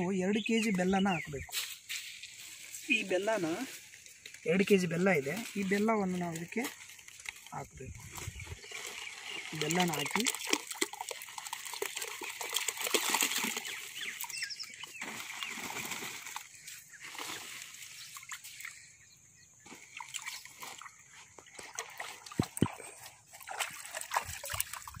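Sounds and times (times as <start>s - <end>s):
jaggery splashing into water: 8.8s - 18.8s, 19.8s - 25.0s
plastic sack rustling: 15.0s - 18.0s.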